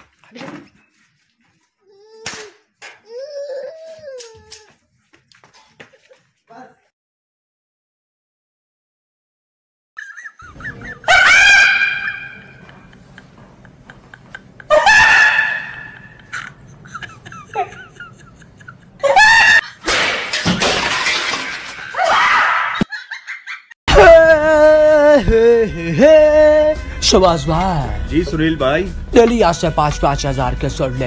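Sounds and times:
high-pitched cries: 1.8 - 4.8, 10.0 - 12.7.

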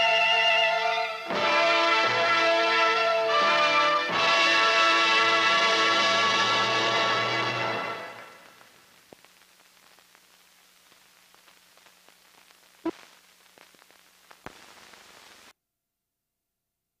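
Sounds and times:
faint hiss: 7.6 - 15.5
film clicks and pops: 8.5 - 15.5.

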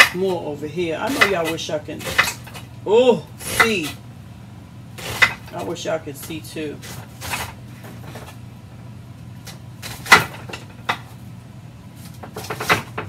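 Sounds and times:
knife chopping onion: 0.0 - 2.6, 3.4 - 4.0, 5.0 - 7.6, 12.0 - 13.0.

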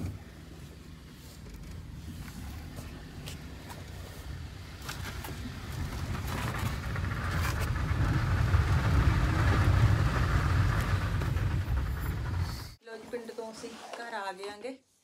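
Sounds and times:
car engine and road rumble: 0.0 - 12.8.

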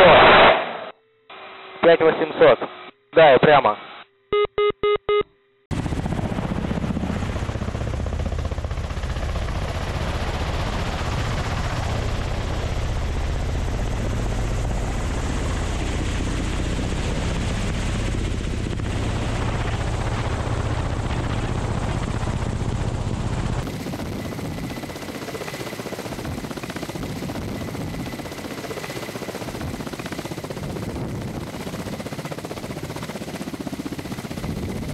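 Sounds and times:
helicopter rotor and turbine noise: 5.7 - 34.9
lighter helicopter sound: 5.7 - 34.9.

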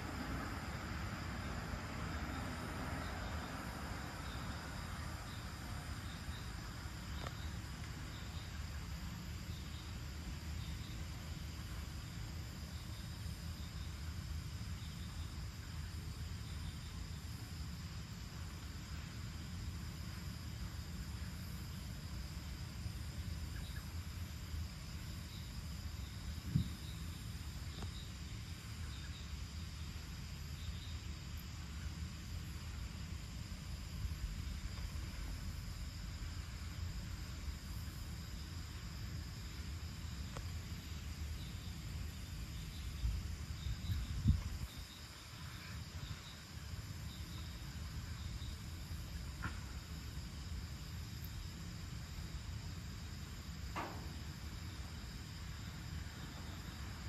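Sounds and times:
insects chirping: 0.0 - 57.0
low steady rumble: 0.0 - 57.0
short low thump: 26.4 - 26.8.

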